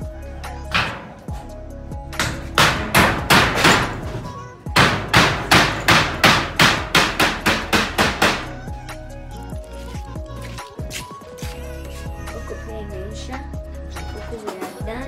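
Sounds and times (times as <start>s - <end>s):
hammer blows: 2.1s - 8.6s.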